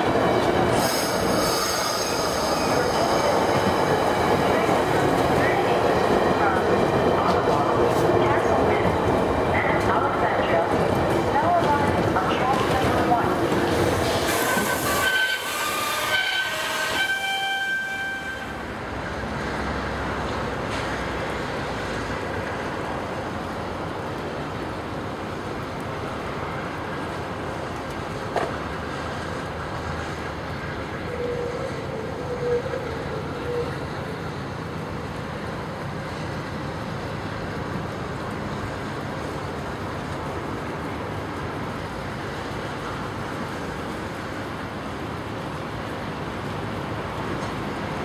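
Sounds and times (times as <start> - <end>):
standing train rumble and hiss: 0.0 - 48.0
wavering squeal: 0.8 - 3.5, 14.4 - 18.4.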